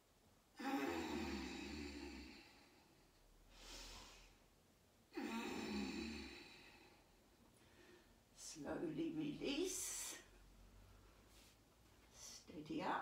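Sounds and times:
woman breathing: 0.6 - 4.5, 5.1 - 8.4.

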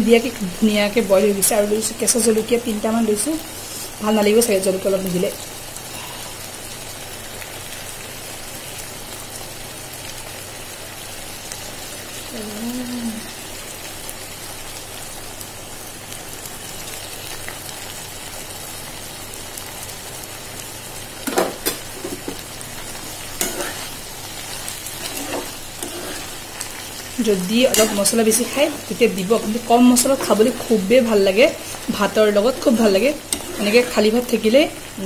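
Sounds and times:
food sizzling in oil: 0.0 - 35.0
metal spatula scraping pan: 23.4 - 26.5, 27.5 - 30.9, 31.6 - 34.4.

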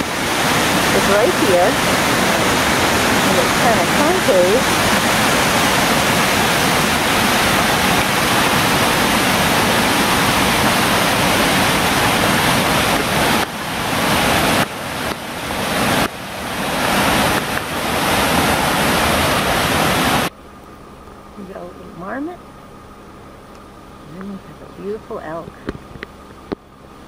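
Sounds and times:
creek rushing over boulders: 0.0 - 20.4.

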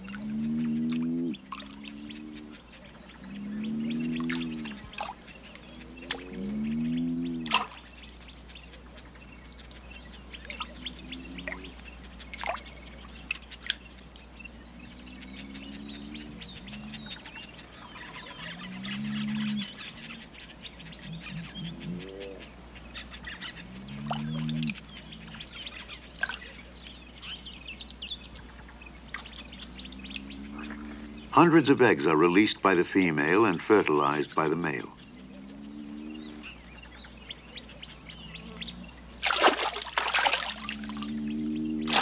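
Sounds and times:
bullfrogs calling: 0.0 - 42.0.

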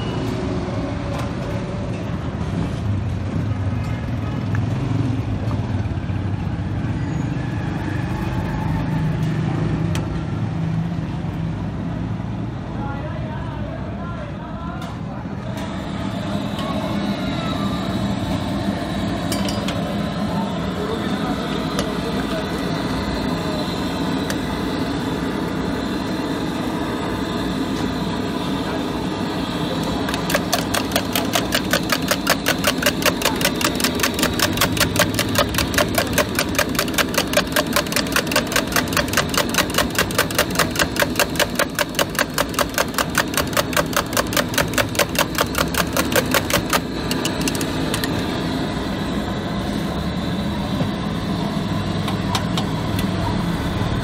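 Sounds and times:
steady background noise: 0.0 - 54.0
spoon beating eggs in metal jug: 30.1 - 48.1.

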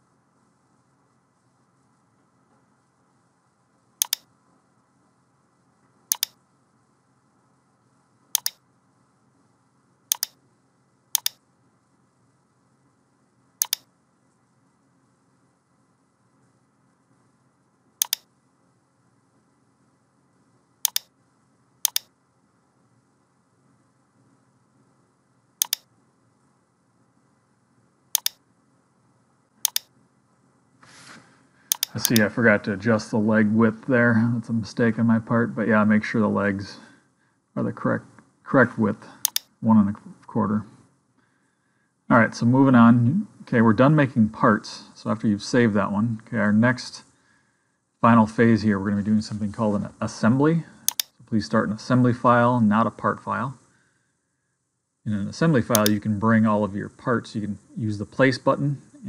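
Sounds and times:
computer mouse button clicks: 4.0 - 4.3, 6.1 - 6.4, 8.4 - 8.6, 10.1 - 10.4, 11.2 - 11.4, 13.6 - 13.9, 18.0 - 18.3, 20.9 - 21.1, 21.9 - 22.1, 25.6 - 25.9, 28.2 - 28.4, 29.6 - 29.9, 31.7 - 32.3, 39.2 - 39.5, 50.9 - 51.1, 55.7 - 56.0.

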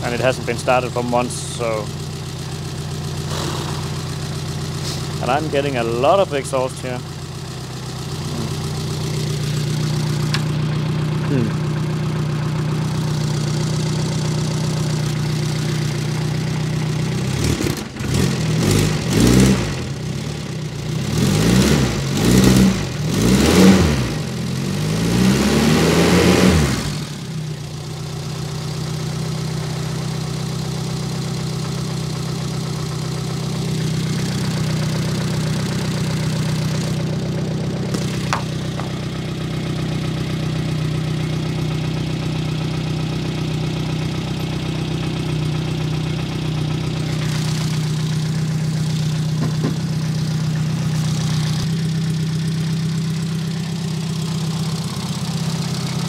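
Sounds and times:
car engine idling and revving: 0.0 - 56.0.

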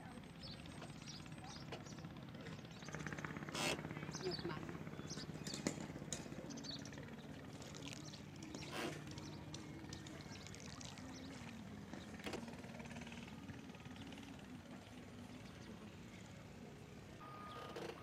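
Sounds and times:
boat engine running slowly: 0.0 - 18.0.

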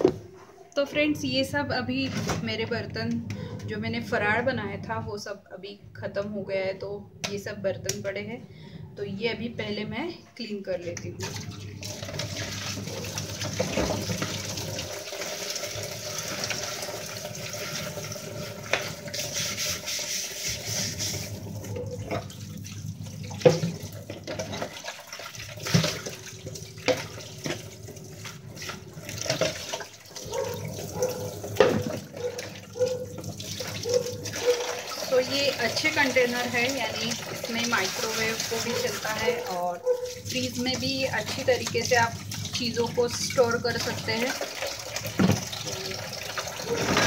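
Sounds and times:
tap water running into sink: 11.0 - 47.0
dishes knocking and clattering: 28.7 - 33.4, 45.1 - 45.6, 46.4 - 47.0.

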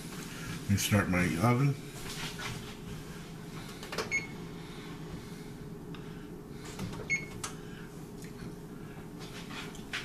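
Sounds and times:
low steady hum: 0.0 - 10.0
oven keys beeping: 4.0 - 4.4, 7.0 - 7.5.

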